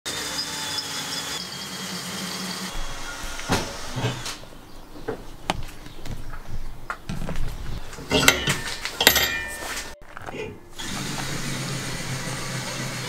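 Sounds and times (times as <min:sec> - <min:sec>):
metal parts knocking: 0:08.0 - 0:09.9.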